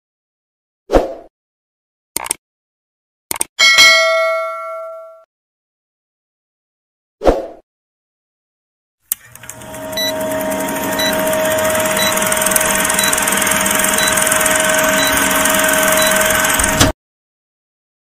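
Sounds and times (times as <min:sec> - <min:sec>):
film projector whirring: 0:09.1 - 0:17.0.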